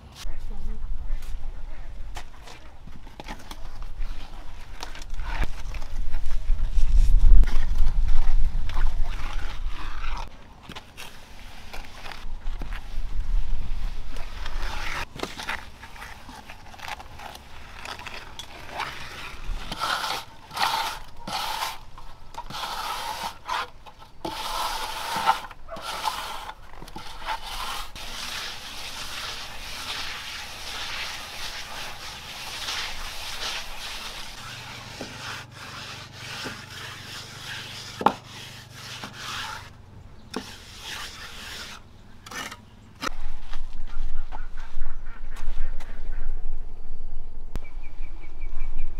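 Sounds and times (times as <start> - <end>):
float scraping cement on wall: 7.3 - 12.8, 14.2 - 39.7, 40.3 - 43.2.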